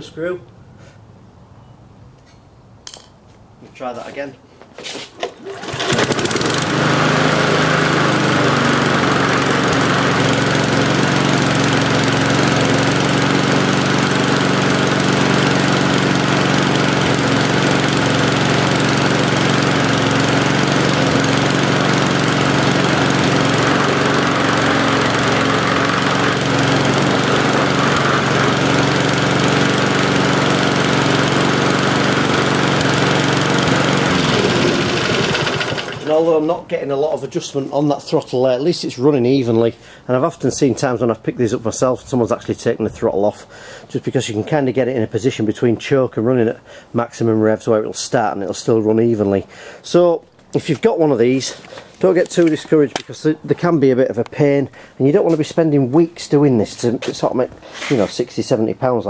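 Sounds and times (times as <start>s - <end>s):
lawnmower engine running: 5.2s - 36.6s.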